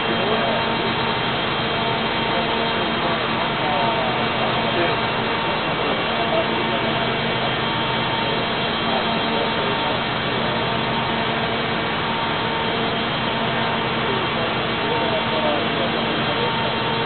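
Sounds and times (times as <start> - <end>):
constant hum: 0.0 - 17.0
rock drilling rig running: 0.0 - 17.0.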